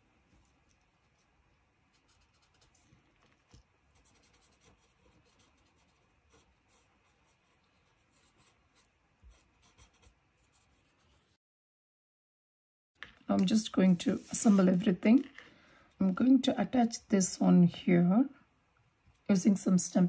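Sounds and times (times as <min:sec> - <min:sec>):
marker scratching on paper: 0:04.0 - 0:11.3.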